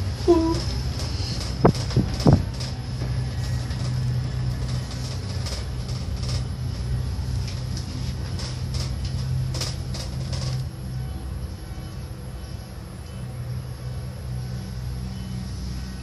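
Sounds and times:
cable car cabin rumble: 0.0 - 16.0.

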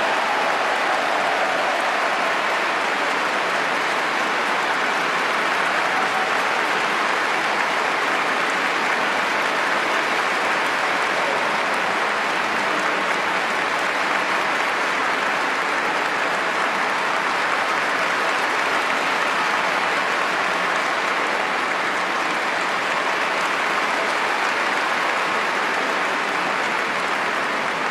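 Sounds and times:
audience applauding: 0.0 - 27.9.

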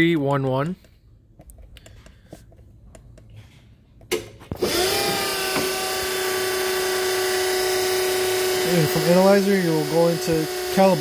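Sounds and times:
electric motor whine: 4.5 - 11.0.

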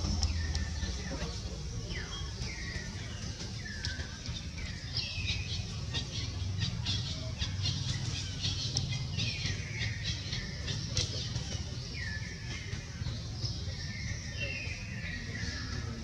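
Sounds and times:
faint clicks: 8.7 - 8.9.

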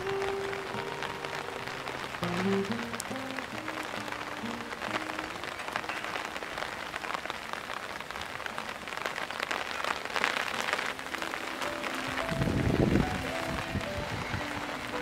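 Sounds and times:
heavy rain on hard surfaces: 0.0 - 15.0
faint background music: 10.7 - 15.0.

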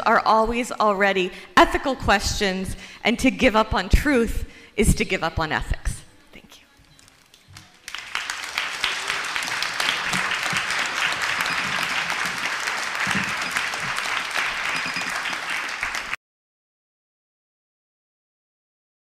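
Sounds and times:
large audience applauding: 6.9 - 16.2.

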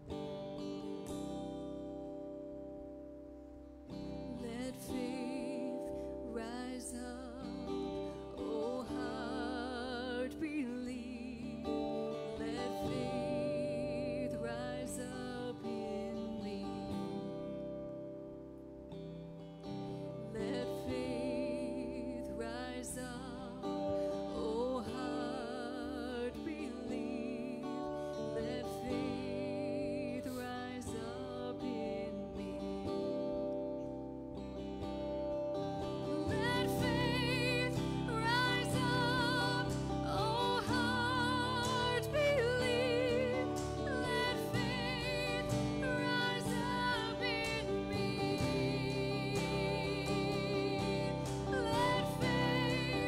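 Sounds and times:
strummed guitar: 0.0 - 53.0
people singing with vibrato: 4.3 - 17.2, 19.9 - 33.0, 36.0 - 53.0.

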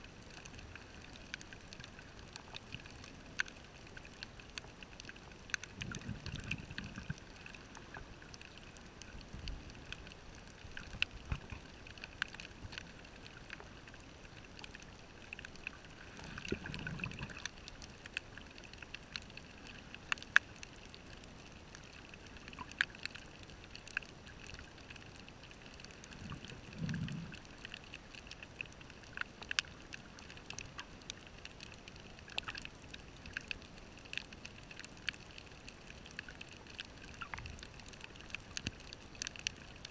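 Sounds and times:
underwater clicks and crackles: 0.0 - 39.9
muffled rush of exhaled bubbles: 5.7 - 8.1, 15.8 - 17.7, 26.0 - 27.7.

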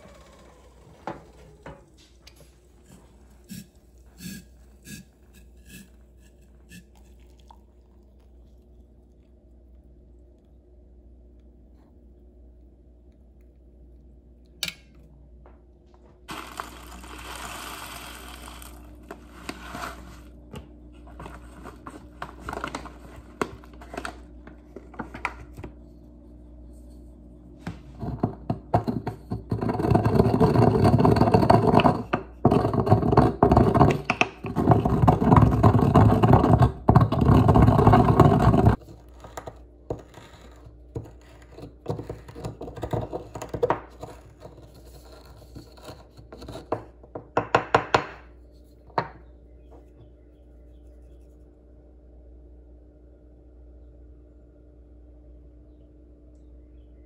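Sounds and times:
pestle grinding in mortar: 28.0 - 46.7.

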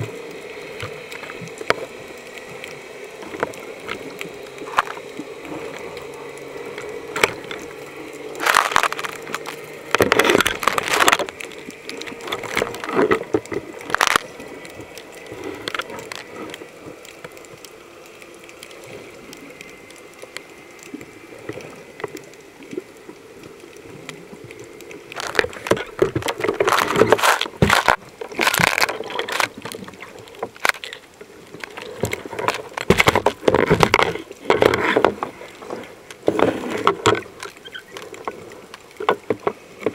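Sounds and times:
faint steady hum: 0.0 - 39.9
underwater gurgling and bubbling: 0.0 - 39.9.

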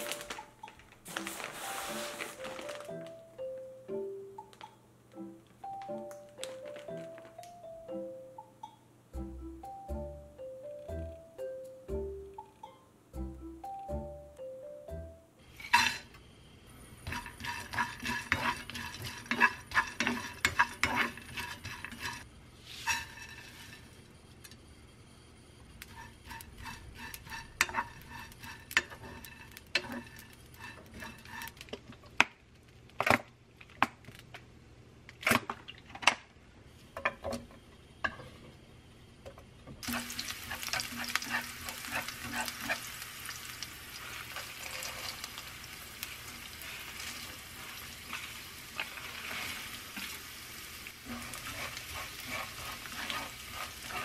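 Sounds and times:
wooden spatula scraping a pan: 1.1 - 2.8, 15.5 - 16.1, 17.0 - 24.0, 25.8 - 31.8, 39.9 - 42.9, 46.4 - 50.3, 51.0 - 54.0
garlic sizzling in oil: 16.9 - 24.0, 25.8 - 31.6, 39.8 - 54.0.

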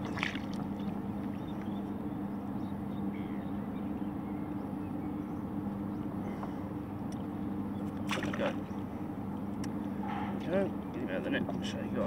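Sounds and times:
faint water sounds: 0.0 - 2.5, 6.2 - 12.0
steady low hum: 0.0 - 12.0.

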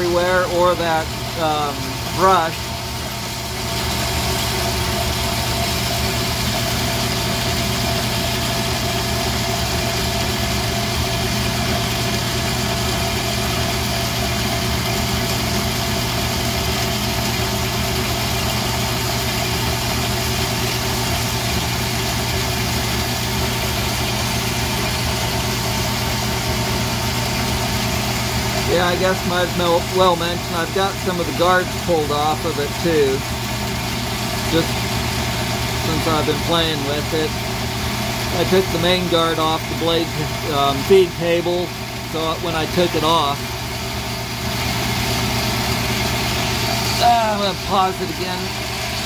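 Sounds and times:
bandsaw cutting metal bars: 28.8 - 33.2, 35.8 - 37.3, 38.3 - 43.4.

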